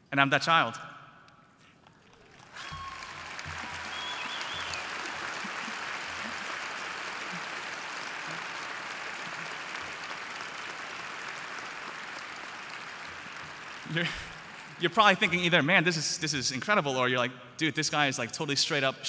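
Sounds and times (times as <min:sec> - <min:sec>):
arena crowd applauding: 0:01.8 - 0:15.7
whistle: 0:02.6 - 0:05.0.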